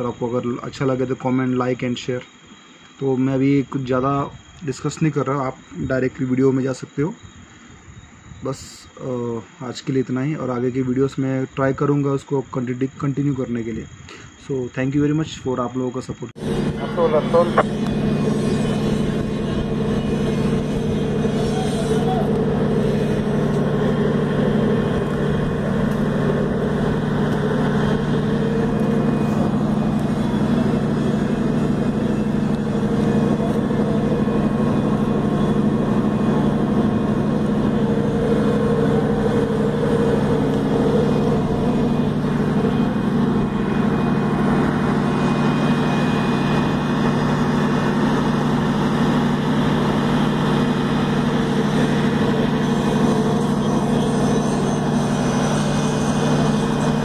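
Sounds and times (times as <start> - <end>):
ship engines droning: 16.3 - 57.0.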